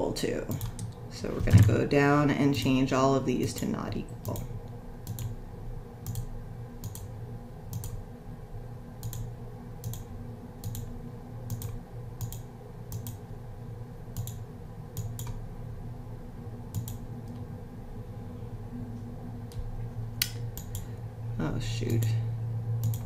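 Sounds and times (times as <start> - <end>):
low steady hum: 0.0 - 23.0
computer mouse clicking: 4.2 - 5.4, 6.0 - 7.1, 7.7 - 8.0, 9.0 - 10.9, 11.5 - 13.2, 14.2 - 14.4, 15.0 - 15.4, 16.7 - 17.4, 20.2 - 20.9, 22.8 - 23.0.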